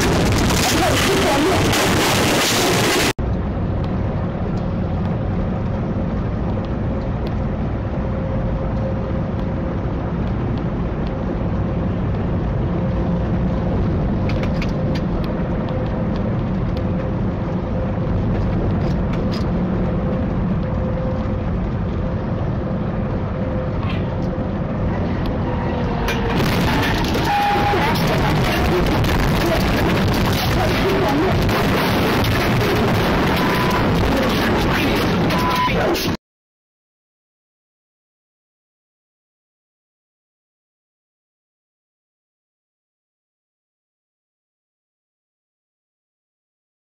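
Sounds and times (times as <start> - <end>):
loud rushing noise: 0.0 - 6.5, 7.5 - 36.2
truck engine and road drone: 0.0 - 36.2.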